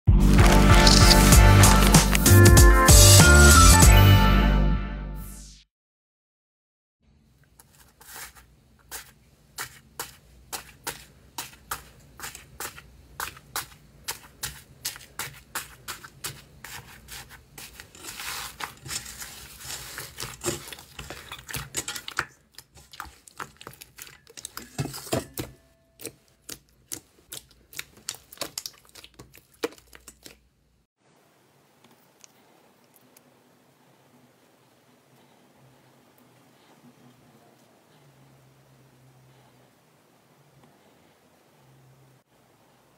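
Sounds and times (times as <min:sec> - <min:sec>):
slime crackling and popping: 0:00.3 - 0:02.3, 0:26.4 - 0:30.4.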